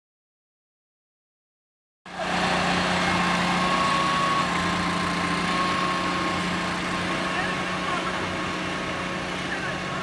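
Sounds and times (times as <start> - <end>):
sponge-roller machine running: 2.1 - 10.0.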